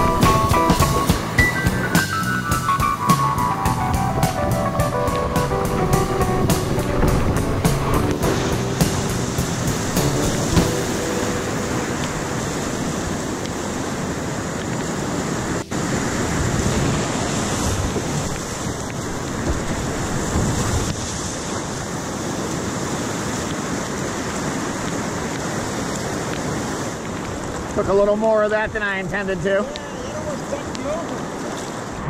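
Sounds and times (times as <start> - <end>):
water splashing over microphone: 0.0 - 28.8
whitewater rapids rushing: 0.0 - 32.0.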